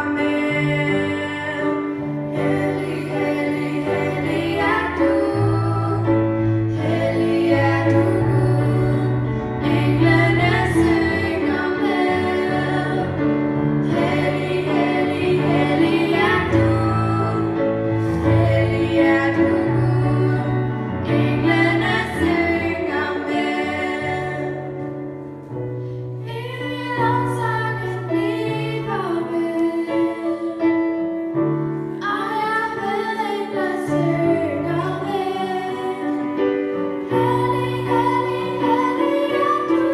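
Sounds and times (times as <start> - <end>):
girls singing into microphones: 0.0 - 25.2, 26.2 - 30.9, 31.9 - 39.9
instrumental accompaniment with bass: 0.0 - 28.9.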